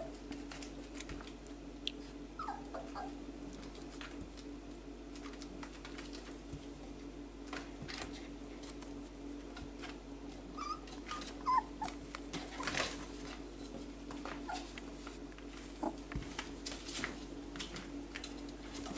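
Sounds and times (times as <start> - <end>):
steady hum: 0.0 - 18.9
puppies whimpering: 2.4 - 3.2, 10.5 - 12.0, 14.4 - 14.8
clicks and rustles of movement: 5.1 - 18.9.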